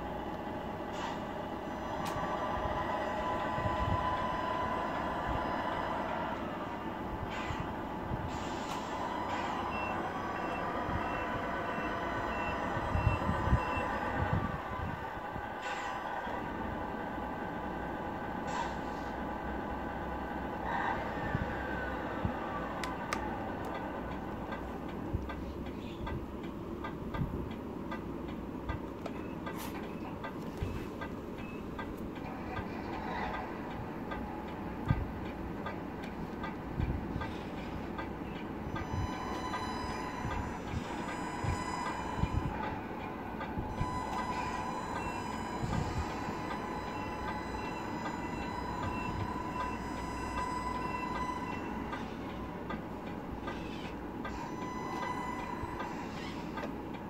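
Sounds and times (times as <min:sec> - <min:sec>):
falling whine: 0:00.0 - 0:25.2
regular ticking: 0:21.7 - 0:57.0.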